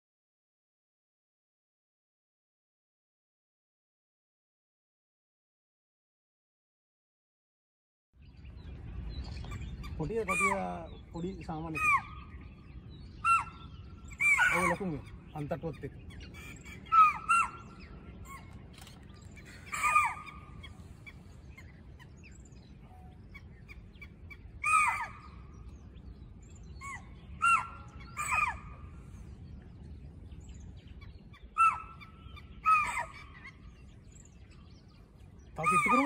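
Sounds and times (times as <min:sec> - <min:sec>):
deer alarm calls: 0:13.2 - 0:15.6, 0:35.6 - 0:36.0.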